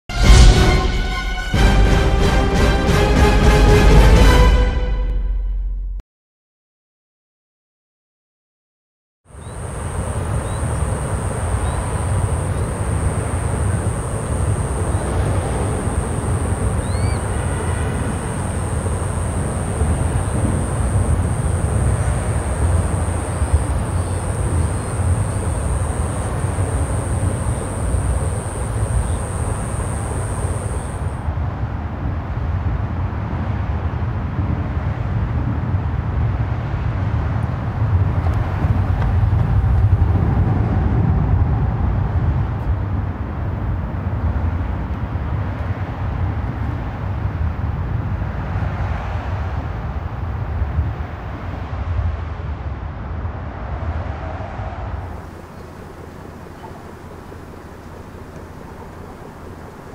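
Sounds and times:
low outdoor rumble: 9.4 - 59.9
thin high tone: 9.6 - 31.2.

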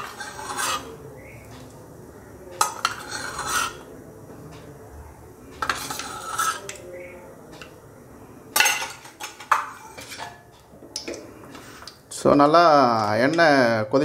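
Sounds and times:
metal spoon scraping metal pan: 0.0 - 1.0, 2.6 - 3.9, 5.6 - 6.8, 8.6 - 10.5.

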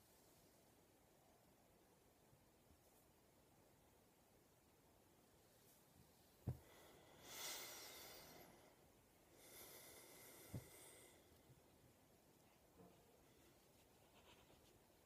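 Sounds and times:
hand stroking rat on sweater: 12.4 - 15.0.

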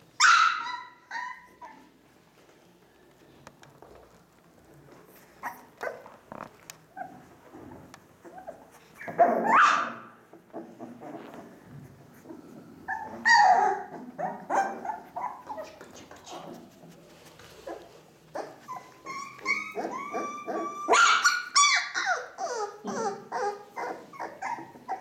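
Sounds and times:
puppies yapping and crying: 0.2 - 2.0, 8.2 - 15.8, 17.6 - 25.0.

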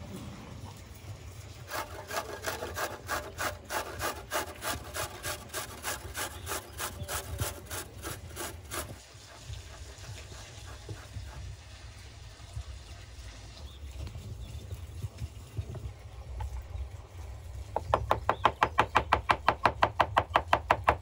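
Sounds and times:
garlic rasping on metal grater: 1.7 - 9.0.

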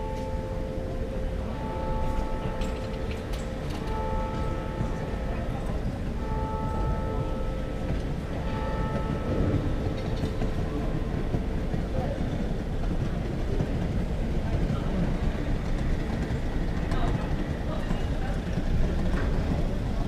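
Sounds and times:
church bells ringing: 0.0 - 11.7
murmur of voices: 4.2 - 20.0.

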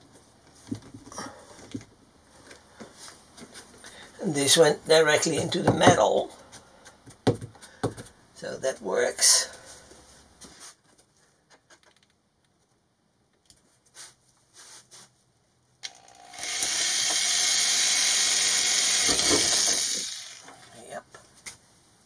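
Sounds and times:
electric drill boring: 15.8 - 20.8.

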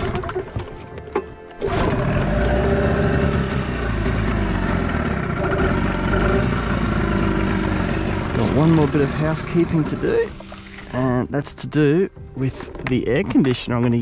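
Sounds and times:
engine running: 0.0 - 11.1.

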